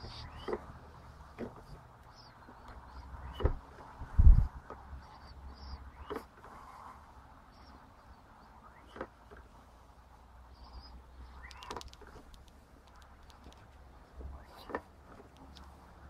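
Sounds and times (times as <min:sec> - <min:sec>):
light clicks: 0:11.4 - 0:15.8.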